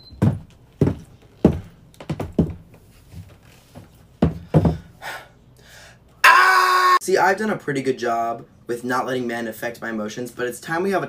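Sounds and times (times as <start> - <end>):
heavy boots on wooden floor: 0.0 - 5.0.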